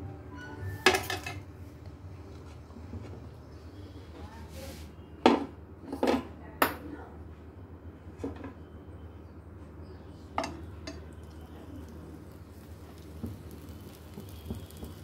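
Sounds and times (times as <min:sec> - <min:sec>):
frying pan and dishes clinking: 0:00.8 - 0:01.4, 0:10.4 - 0:11.4
low steady hum: 0:07.6 - 0:15.0.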